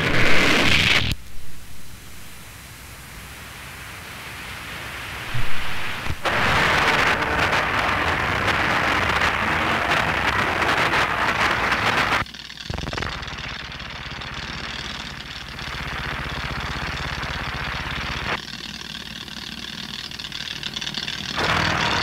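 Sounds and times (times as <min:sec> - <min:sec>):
dense loud hiss: 0:00.0 - 0:12.2
low pulsing rumble: 0:05.2 - 0:22.0.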